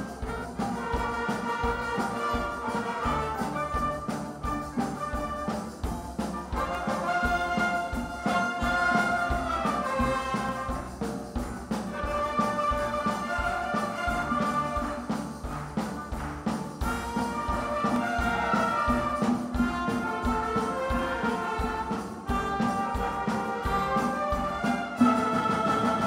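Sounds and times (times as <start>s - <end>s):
conga and percussion beat: 0.0s - 26.0s
sustained strings and winds: 22.8s - 26.0s.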